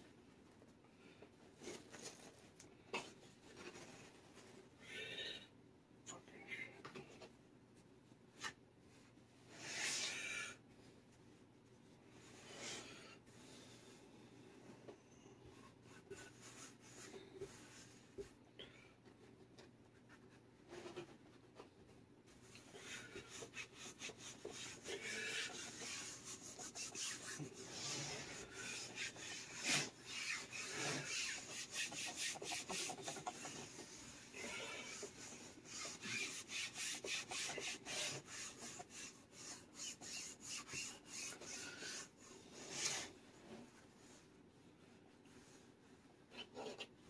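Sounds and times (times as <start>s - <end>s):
hands brushing fabric: 22.5s - 43.1s.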